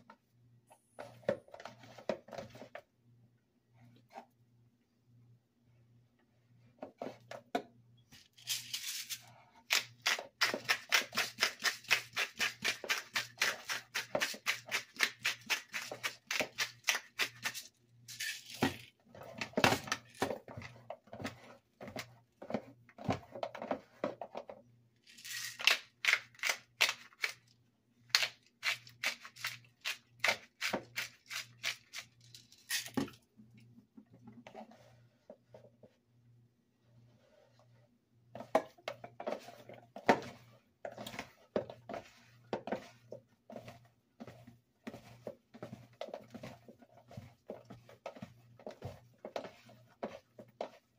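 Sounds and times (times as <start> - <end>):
seasoning shaker rattling: 8.4 - 9.3, 10.6 - 18.9, 25.1 - 25.7
pepper grinder twisting: 25.1 - 27.4, 28.1 - 33.0.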